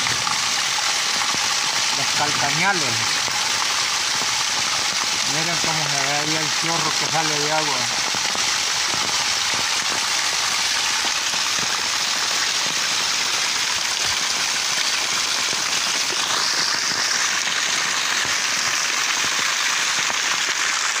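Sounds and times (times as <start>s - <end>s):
heavy rain hissing: 0.0s - 21.0s
water pouring from drain pipes: 0.0s - 21.0s.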